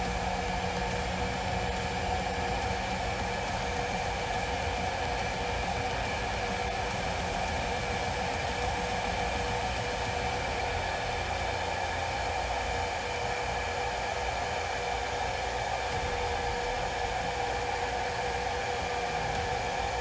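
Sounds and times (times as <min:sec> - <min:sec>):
router spindle whirring and whining: 0:00.0 - 0:12.4.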